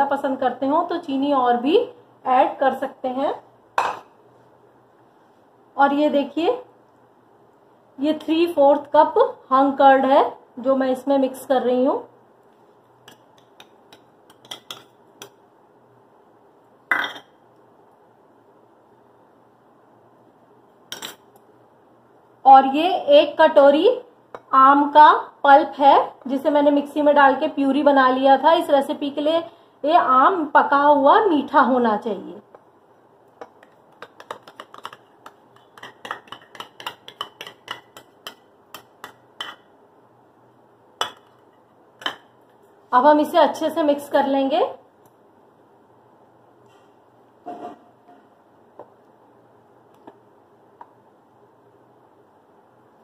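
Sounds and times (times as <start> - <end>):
spoon scraping steel bowl: 47.4 - 48.2.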